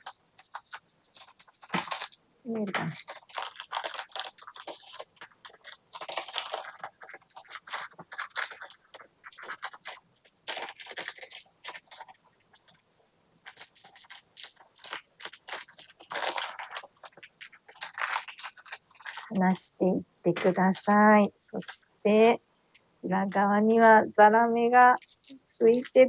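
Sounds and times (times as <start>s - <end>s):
baking paper crinkling: 0.0s - 22.2s, 23.2s - 26.0s.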